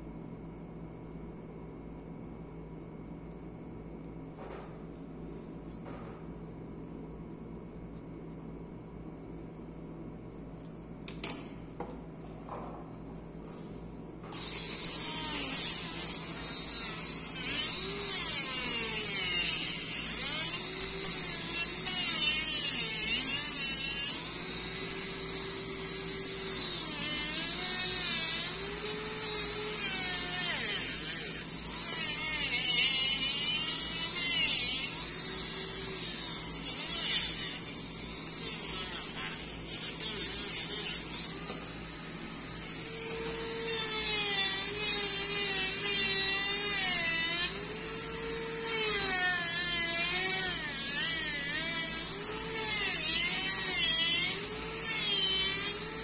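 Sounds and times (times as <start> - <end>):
dental handpiece whine: 14.3 - 56.0.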